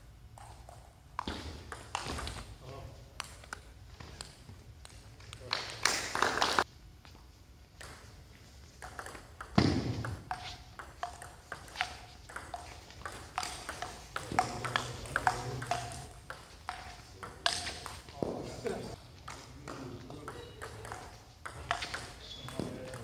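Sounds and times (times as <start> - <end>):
ping pong ball hits: 8.8 - 18.4, 19.3 - 23.0
ball bouncing on table: 8.8 - 18.5, 19.3 - 23.0.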